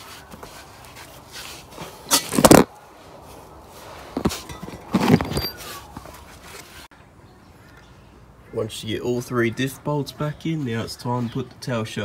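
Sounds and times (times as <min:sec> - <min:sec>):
metal tools and bolts clattering: 0:04.2 - 0:05.8.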